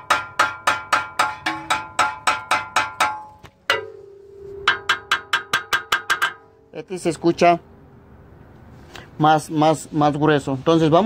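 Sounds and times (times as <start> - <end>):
metallic taps on exhaust: 0.0 - 6.8.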